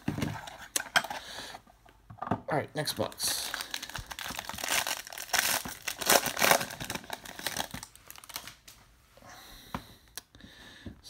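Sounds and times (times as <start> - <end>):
foil wrapper crinkling: 3.0 - 8.7.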